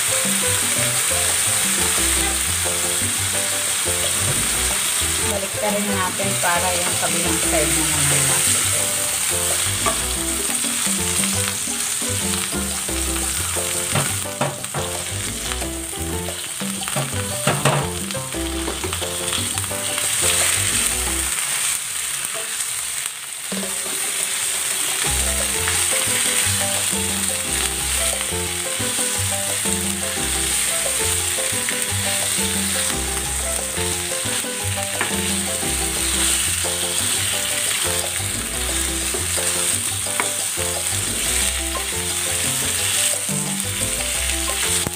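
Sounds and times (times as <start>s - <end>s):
meat sizzling in oil: 0.0s - 44.9s.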